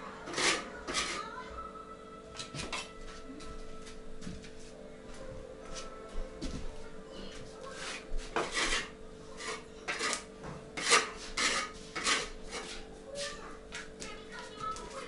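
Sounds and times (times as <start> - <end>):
hand tool scraping bricks: 0.3 - 1.3, 7.8 - 12.8.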